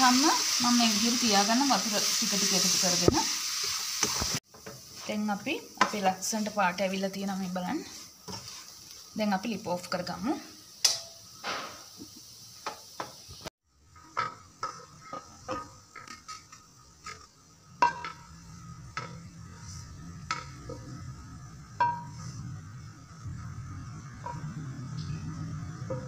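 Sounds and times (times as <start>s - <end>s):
spoon scraping a pan: 7.8s - 9.2s, 13.9s - 21.1s, 21.8s - 22.5s.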